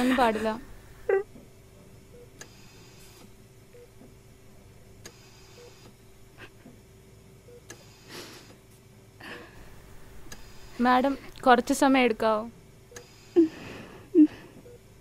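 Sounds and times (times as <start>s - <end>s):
steady low hum: 0.0s - 15.0s
patient monitor beeping: 2.0s - 3.0s, 3.7s - 4.0s, 5.1s - 5.9s, 7.4s - 7.9s.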